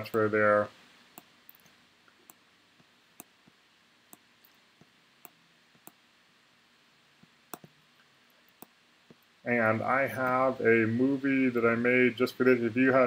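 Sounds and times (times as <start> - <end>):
computer mouse clicks: 1.2 - 2.4, 3.2 - 6.0, 7.2 - 7.8, 8.5 - 9.3.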